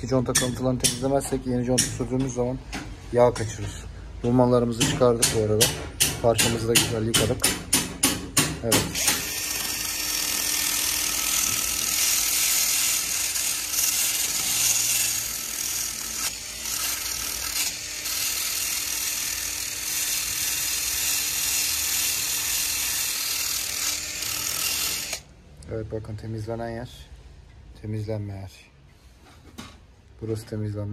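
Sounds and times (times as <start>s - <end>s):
drill motor tone: 8.9s - 25.3s.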